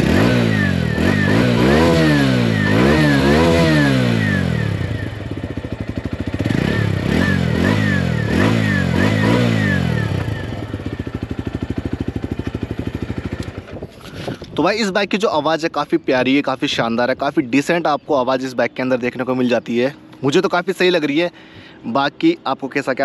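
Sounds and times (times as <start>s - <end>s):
motorcycle engine revving: 0.0s - 14.6s.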